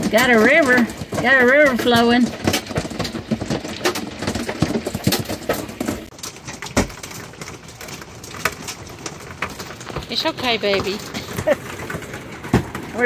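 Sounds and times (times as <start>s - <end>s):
hail striking camper roof: 0.0s - 13.0s.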